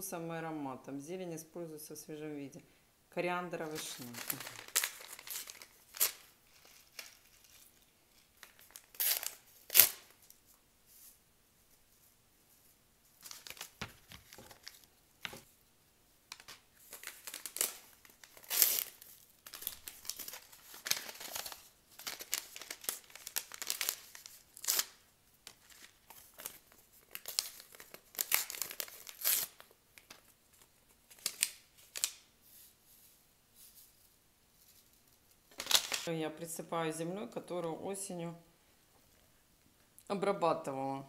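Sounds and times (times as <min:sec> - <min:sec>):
paper packet crinkling: 0:03.6 - 0:10.4, 0:13.2 - 0:15.5, 0:16.3 - 0:32.7, 0:34.6 - 0:36.1.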